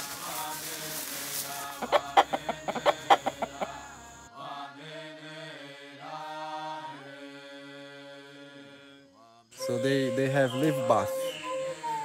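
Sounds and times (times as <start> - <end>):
rooster clucking: 1.8 - 4.0
music with long held notes: 9.6 - 12.0.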